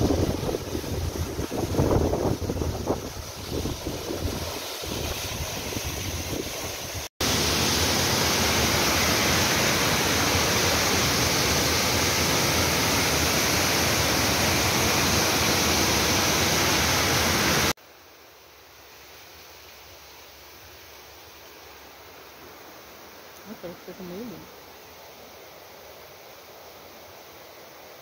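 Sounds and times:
waterfall rushing and splashing: 0.0 - 17.8.

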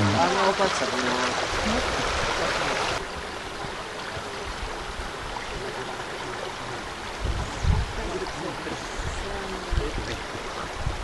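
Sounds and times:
stream rushing: 0.0 - 11.0.

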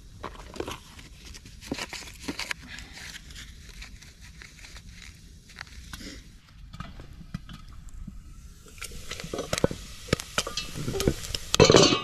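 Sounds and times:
campfire crackling: 3.2 - 12.0
food sizzling in a pot: 8.2 - 12.0.

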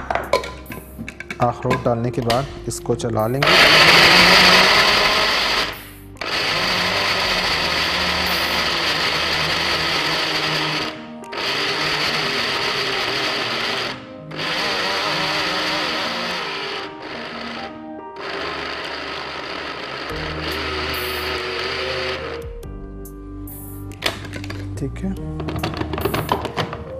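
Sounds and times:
electric grinder grinding nuts: 3.3 - 22.6, 25.4 - 26.8.

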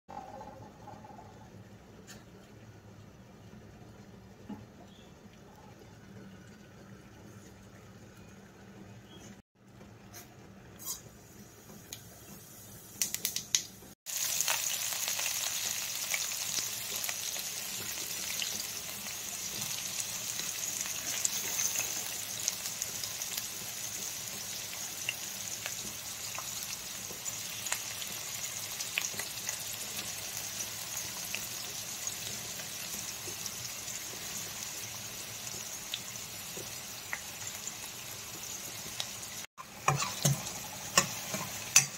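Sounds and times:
onions sizzling in oil: 10.8 - 41.9
oil popping and crackling: 13.0 - 30.2.

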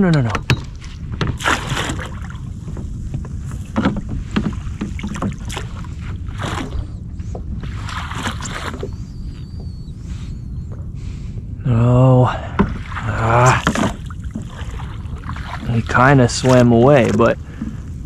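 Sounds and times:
wind rumble on microphone: 0.0 - 18.0
landing net splashing in water: 1.2 - 2.5, 3.7 - 6.8, 12.6 - 17.4.

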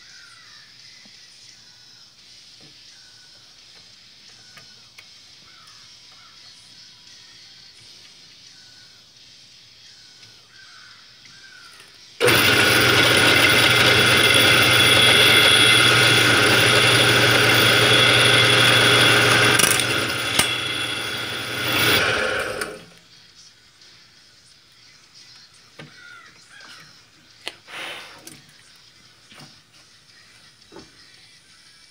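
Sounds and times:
drill press drilling plastic: 12.2 - 23.0.

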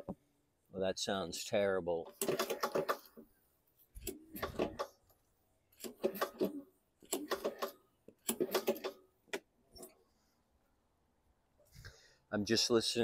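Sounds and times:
mower engine banging: 2.1 - 3.1.

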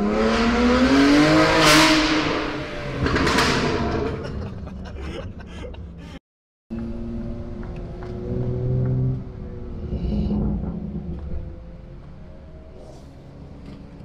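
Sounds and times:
car engine accelerating: 0.0 - 4.7, 6.7 - 14.0
exhaust rushes: 6.8 - 13.9.

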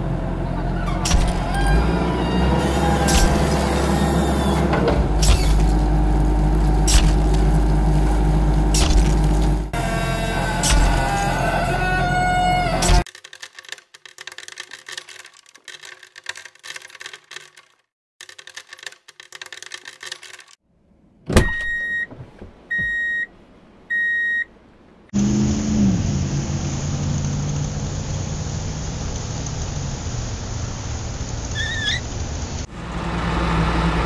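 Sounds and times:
truck engine running: 0.0 - 13.0, 32.2 - 34.0
plastic rocks clicking and rattling: 13.0 - 20.6
electronic beeps: 22.7 - 23.3, 23.9 - 24.5.

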